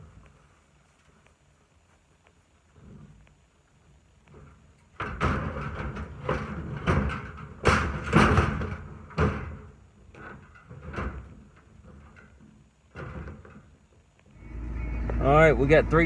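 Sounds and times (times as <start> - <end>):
plastic totes knocking and thumping: 4.3 - 13.7.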